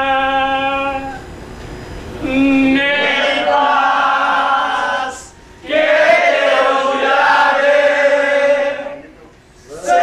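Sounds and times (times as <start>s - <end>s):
men singing together: 2.2s - 9.0s.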